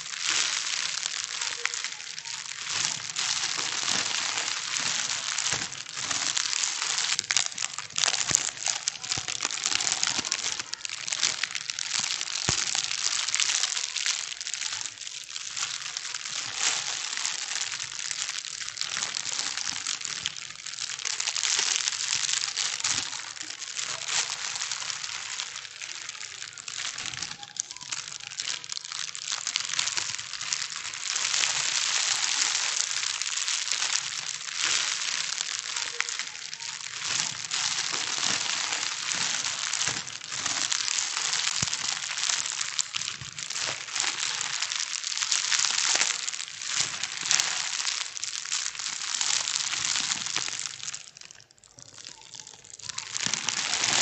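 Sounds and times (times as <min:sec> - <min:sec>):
plastic bags crinkling: 0:00.0 - 0:54.0.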